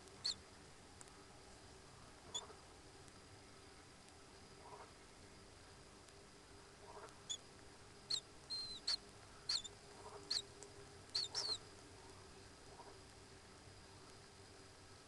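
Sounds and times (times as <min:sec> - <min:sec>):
faint steady hum: 0:00.0 - 0:15.0
kingfisher whistled calls: 0:08.1 - 0:09.7, 0:10.3 - 0:10.5, 0:11.2 - 0:11.6.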